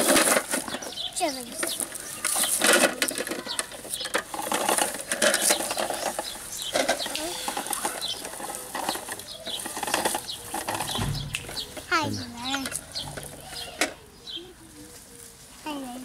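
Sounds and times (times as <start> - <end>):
plastic toy trucks clattering: 0.0 - 14.0
grass rustling: 0.0 - 16.0.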